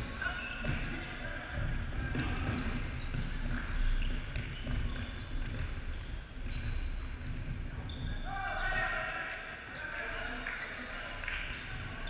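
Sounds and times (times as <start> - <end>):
players' voices: 0.0 - 3.0, 7.8 - 12.0
shoe squeaks: 0.0 - 10.2
ball kicked and bouncing: 1.6 - 7.9.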